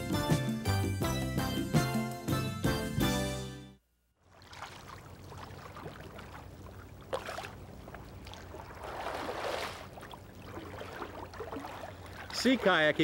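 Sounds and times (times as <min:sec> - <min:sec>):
kayak paddle swishing through water: 0:04.2 - 0:13.0
paddle splash: 0:04.2 - 0:13.0.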